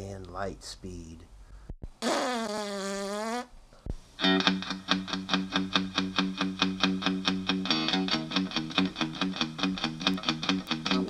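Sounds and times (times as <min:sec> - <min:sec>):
distorted electric guitar riff: 0:04.2 - 0:11.0.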